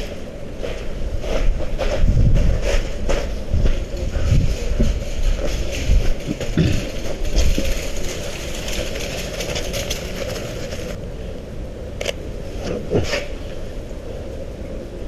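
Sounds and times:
footsteps on snowy cobblestones: 0.0s - 11.0s.

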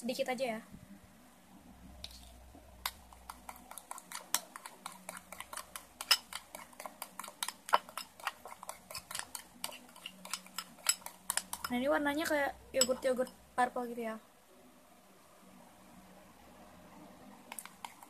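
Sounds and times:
metal spoon clinking on glass bowl: 4.1s - 6.6s, 7.2s - 11.7s, 12.8s - 13.4s.

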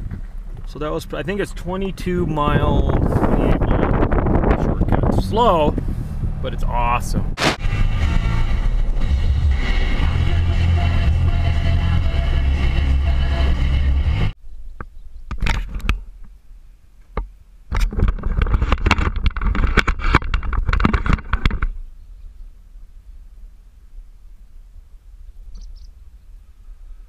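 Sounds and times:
car engine and road noise: 0.0s - 21.9s
irregular clicking and rustling: 17.0s - 21.8s.

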